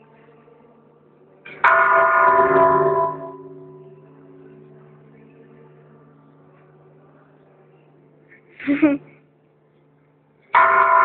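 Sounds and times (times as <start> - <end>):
low steady hum: 0.0 - 11.0
church bell ringing: 1.5 - 8.2, 10.5 - 11.0.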